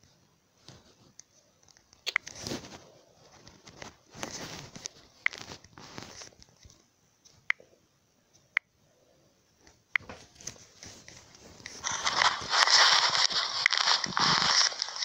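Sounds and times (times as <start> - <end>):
loud crackly rustling: 10.3 - 15.0.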